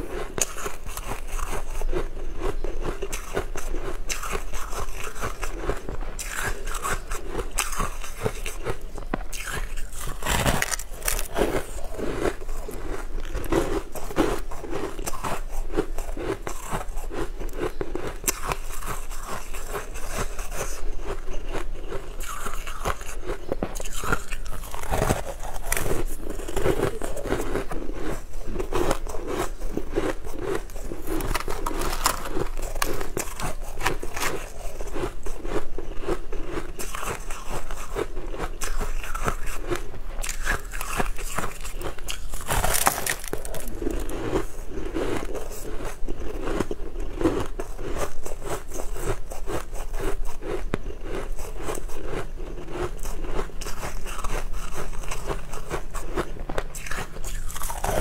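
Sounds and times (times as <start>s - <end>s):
person chewing crunchy food: 0.0s - 58.0s.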